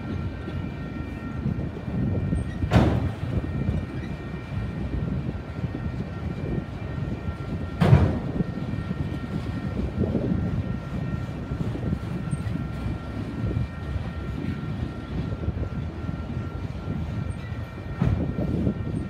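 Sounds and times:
freight train wheels rumbling on rail: 0.0 - 19.0
sharp bang: 2.7 - 3.2, 7.8 - 8.2.

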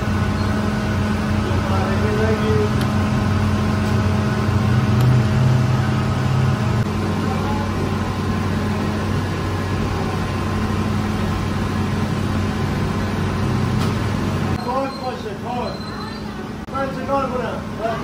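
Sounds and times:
machinery humming: 0.0 - 18.0.

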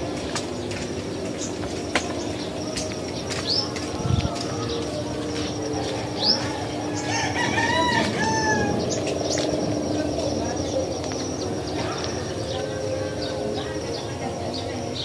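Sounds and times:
birds chirping: 0.0 - 15.0
rooster crowing: 5.7 - 9.0.

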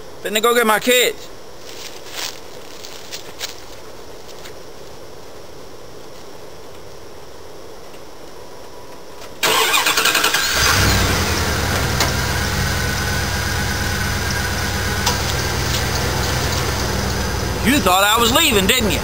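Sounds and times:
engine idling: 9.4 - 19.0.

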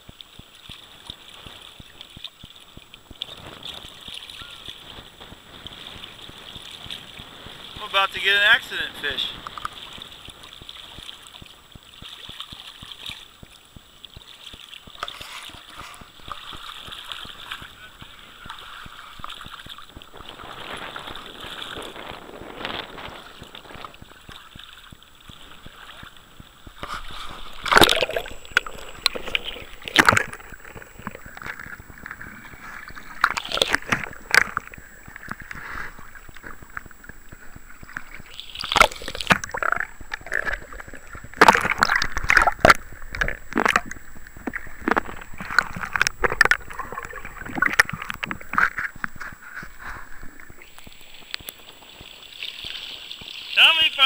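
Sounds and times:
river water running: 0.0 - 54.0
water sloshing and splashing: 0.1 - 54.0.

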